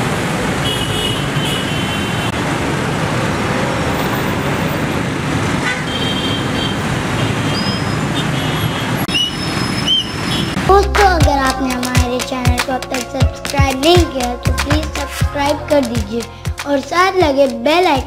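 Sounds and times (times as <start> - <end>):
traffic jam roar: 0.0 - 18.0
vehicle horns tooting: 0.6 - 2.4, 5.6 - 10.6.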